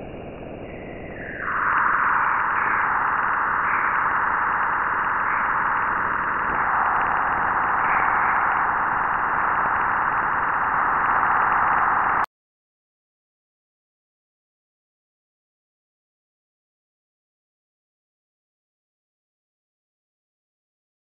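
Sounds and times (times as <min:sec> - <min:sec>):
steady mid-pitched hiss: 0:00.0 - 0:12.2.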